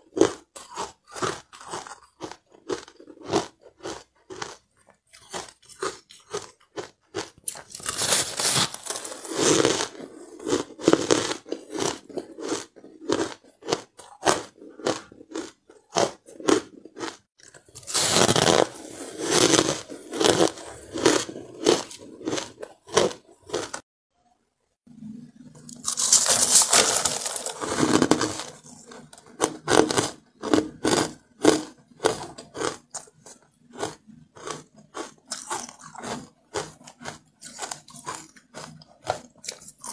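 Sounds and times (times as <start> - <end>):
crunching ice: 0.0 - 23.8, 25.6 - 39.9.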